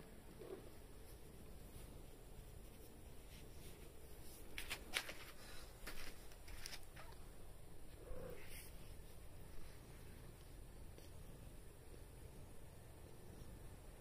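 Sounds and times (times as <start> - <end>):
cat purring: 0.2 - 4.3, 7.0 - 14.0.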